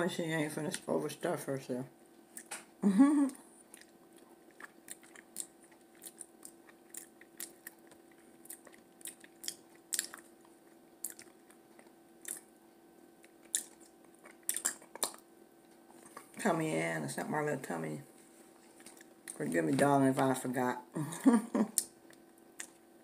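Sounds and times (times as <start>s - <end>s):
person chewing food: 2.2s - 2.7s, 3.3s - 16.4s, 18.5s - 19.8s, 21.6s - 23.0s.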